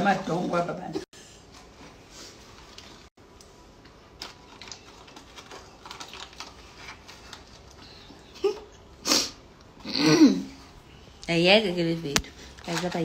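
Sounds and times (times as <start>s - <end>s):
packet crinkling: 4.1s - 8.1s.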